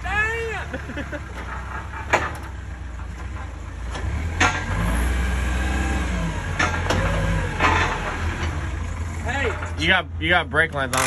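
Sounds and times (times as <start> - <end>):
forklift engine running: 0.0 - 11.0
sharp clanks: 1.3 - 4.8, 6.5 - 8.6, 10.8 - 11.0.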